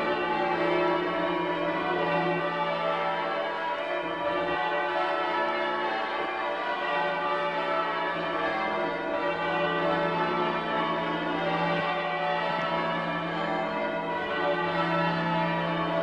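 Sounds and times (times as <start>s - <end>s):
church bells ringing a peal: 0.0s - 16.0s.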